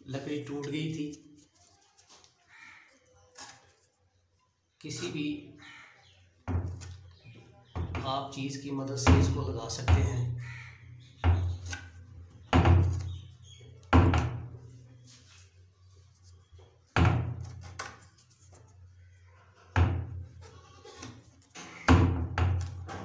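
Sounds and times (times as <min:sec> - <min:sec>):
thumps on wooden door: 0:13.9 - 0:14.5, 0:17.0 - 0:17.4, 0:19.8 - 0:20.2, 0:21.9 - 0:23.0.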